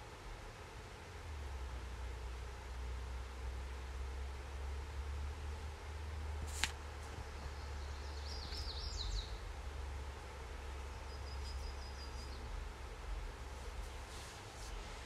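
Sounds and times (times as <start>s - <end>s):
bird calling: 7.2s - 9.5s, 10.5s - 12.6s.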